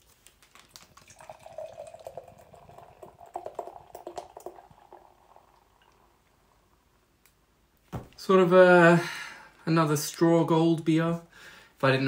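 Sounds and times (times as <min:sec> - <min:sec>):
beer pouring into glass: 0:00.8 - 0:06.8.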